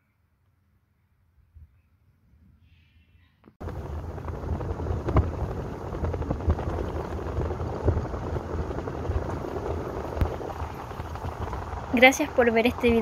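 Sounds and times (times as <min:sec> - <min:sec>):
vehicle road noise rumble: 0:03.6 - 0:13.0.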